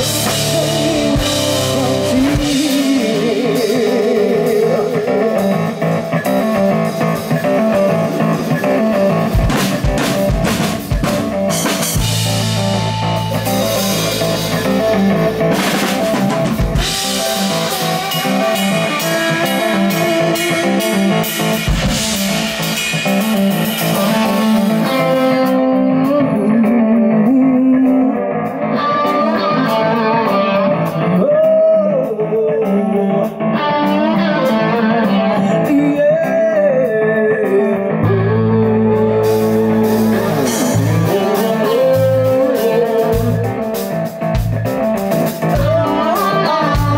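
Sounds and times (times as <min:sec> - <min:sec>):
blues-rock band playing: 0:00.0 - 0:46.9
electric guitar lead notes: 0:00.0 - 0:46.9
cymbals: 0:10.6 - 0:24.9.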